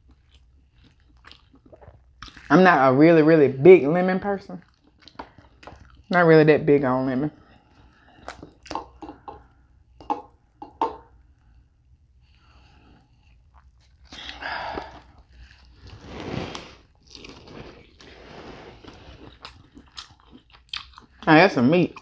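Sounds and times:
biting and chewing: 0:16.9 - 0:21.3.

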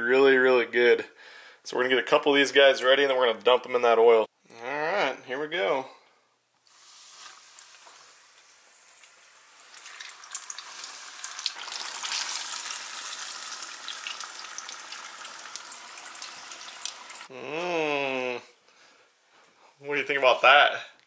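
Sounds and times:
deep-frying sizzle with crackles: 0:06.6 - 0:17.3.

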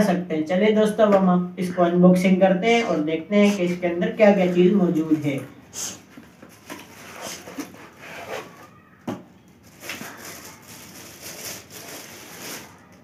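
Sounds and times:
packaging rustling and scraping: 0:06.1 - 0:08.8, 0:09.6 - 0:13.0.

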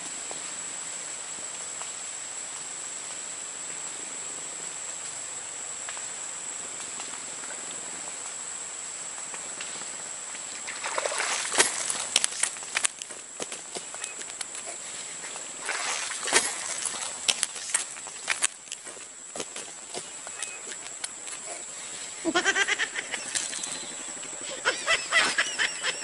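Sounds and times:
steady outdoor hiss: 0:00.0 - 0:26.0
rustling: 0:09.6 - 0:24.4
water splashing: 0:10.5 - 0:22.0
sharp clicks: 0:11.6 - 0:14.6
high-pitched whine: 0:22.9 - 0:26.0.

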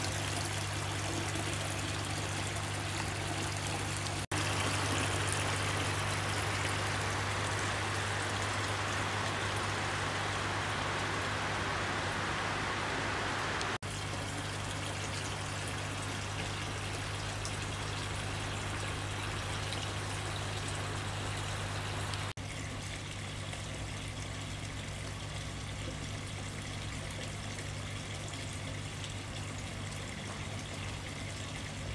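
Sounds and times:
fountain water trickling and pouring: 0:00.0 - 0:12.2, 0:13.8 - 0:31.9
steady low hum: 0:00.0 - 0:22.3.

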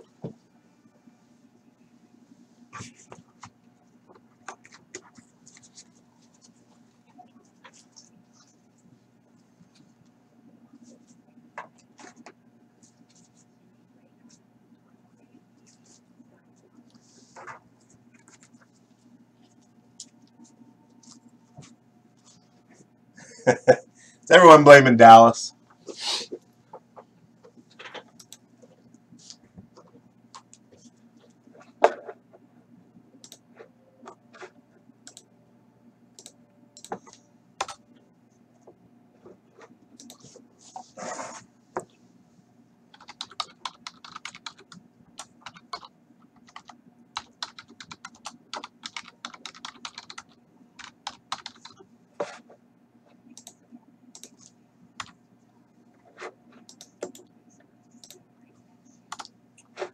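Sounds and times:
faint steady hum: 0:00.0 - 0:59.9
typing on computer keyboard: 0:36.2 - 0:37.8, 0:42.9 - 0:51.8, 0:53.4 - 0:55.2, 0:59.1 - 0:59.3.

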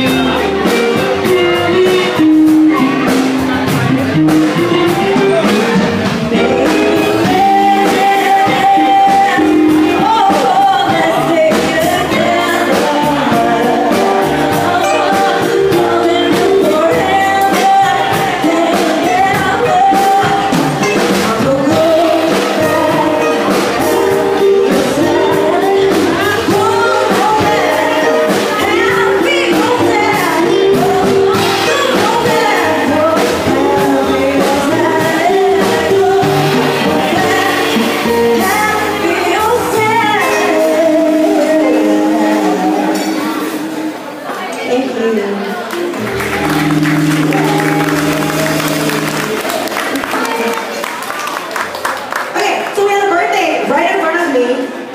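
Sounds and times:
drum kit beat: 0:00.0 - 0:44.0, 0:45.8 - 0:50.8
electric guitar: 0:00.0 - 0:44.1, 0:45.6 - 0:52.0
woman singing: 0:06.1 - 0:43.9.

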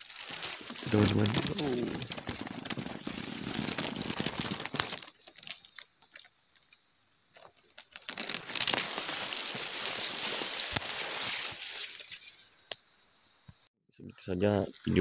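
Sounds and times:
dry grass rustling and crackling: 0:00.0 - 0:06.3, 0:07.3 - 0:12.4
insects chirring: 0:00.0 - 0:15.0.

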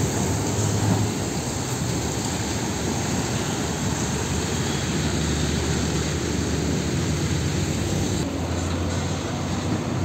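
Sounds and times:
road and tyre noise: 0:00.0 - 0:10.0
truck diesel engine driving past: 0:02.8 - 0:10.0.

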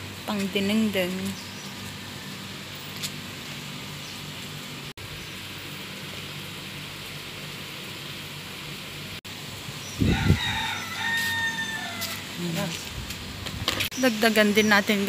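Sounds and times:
outdoor background hiss: 0:00.0 - 0:15.0
rooster crowing: 0:10.0 - 0:12.4.

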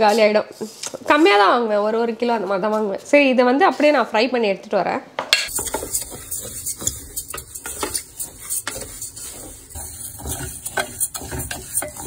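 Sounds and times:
grains scraping against metal: 0:05.5 - 0:12.0.

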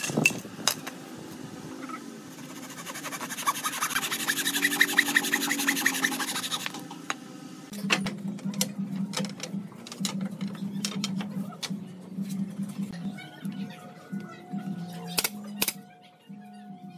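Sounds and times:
handsaw rasping through wood: 0:02.3 - 0:06.8.

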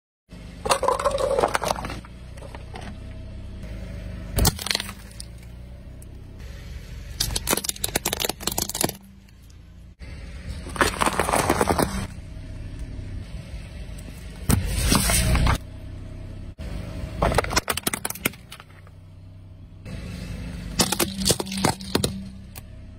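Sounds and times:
low rumble of car: 0:00.3 - 0:22.9
plastic and paper crunching: 0:10.5 - 0:12.1.

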